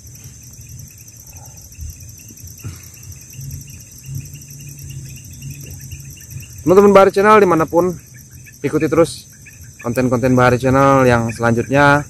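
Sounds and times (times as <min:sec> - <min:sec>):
insects chorus pulsing: 0:00.0 - 0:12.0.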